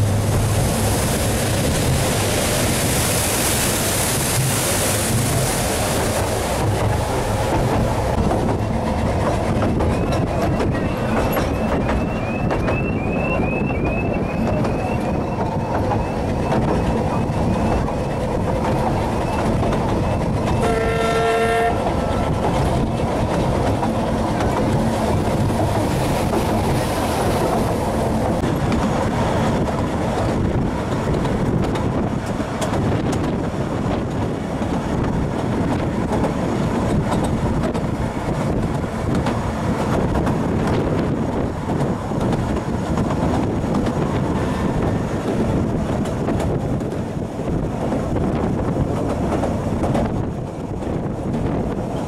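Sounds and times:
steam train rumble and wheel clatter: 0.0s - 52.0s
steam locomotive whistle blast: 20.6s - 21.8s.

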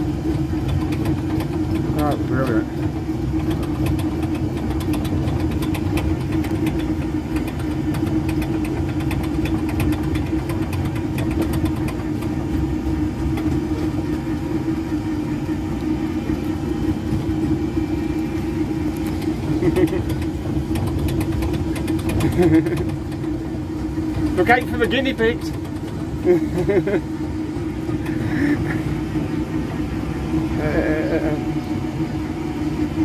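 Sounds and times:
ride vehicle motor humming: 0.0s - 33.0s
light rattling: 17.0s - 28.8s.

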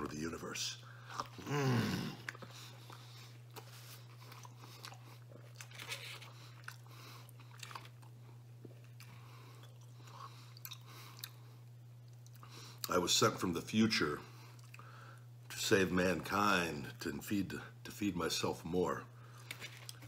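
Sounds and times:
person chewing pizza: 0.9s - 13.0s, 14.3s - 15.2s, 19.3s - 20.0s.

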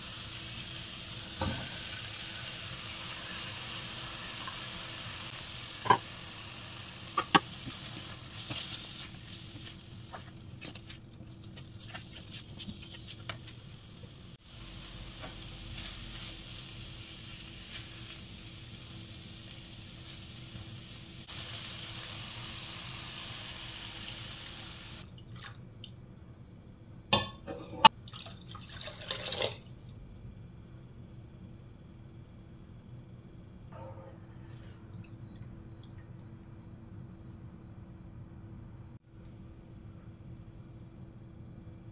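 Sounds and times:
food sizzling in a frying pan: 0.0s - 10.3s, 14.2s - 25.0s
spatula scraping and tapping pan: 7.2s - 13.6s.

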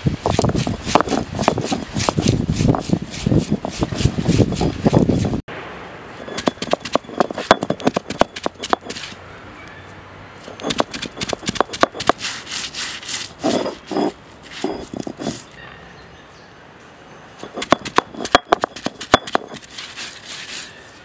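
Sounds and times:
stone roller rasping: 0.2s - 5.4s, 6.2s - 9.2s, 10.5s - 15.5s, 17.4s - 20.8s
sharp clicks and knocks: 6.3s - 9.2s, 10.5s - 12.2s, 17.4s - 19.7s.

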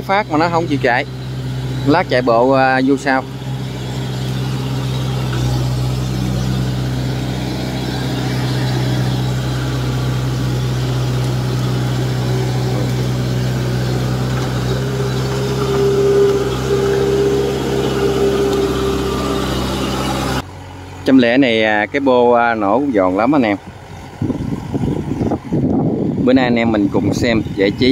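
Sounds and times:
high steady whine: 0.0s - 20.4s
combine harvester diesel engine: 0.0s - 27.9s.

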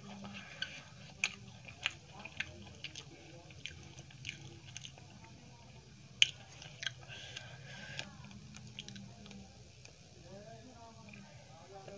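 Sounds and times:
chewing with wet mouth clicks: 0.0s - 10.0s.

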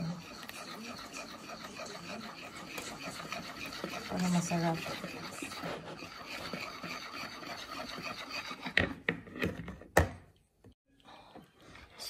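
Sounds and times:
wire whisk scraping a plastic bowl: 0.0s - 9.6s.

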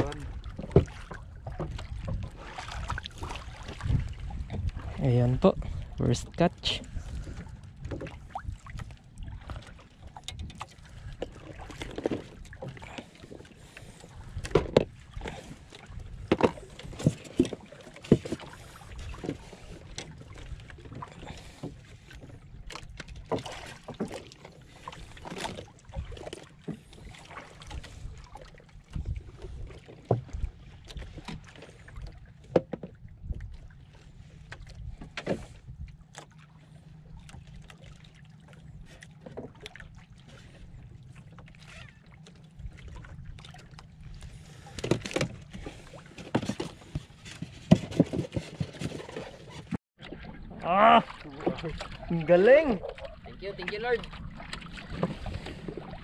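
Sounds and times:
low wind rumble: 0.0s - 17.1s
water lapping against hull: 0.0s - 56.0s.

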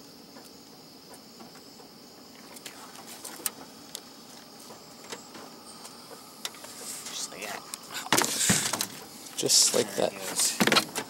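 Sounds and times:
faint high hiss: 2.3s - 10.6s.

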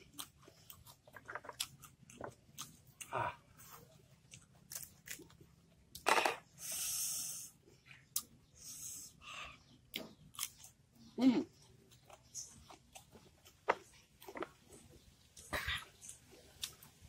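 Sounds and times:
hiss: 6.6s - 7.5s.

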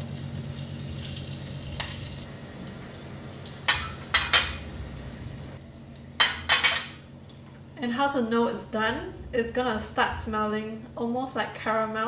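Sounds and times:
leaves sizzling in butter: 0.0s - 5.6s.

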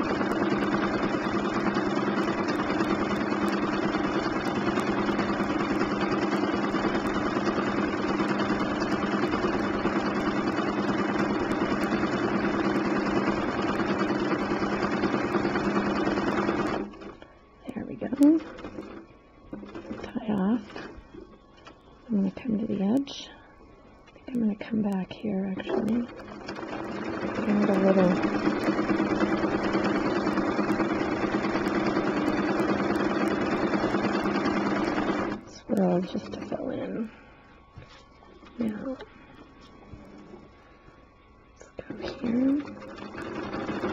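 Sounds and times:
sewing machine running: 0.0s - 17.2s, 18.2s - 21.0s, 25.6s - 35.4s, 42.0s - 43.9s.

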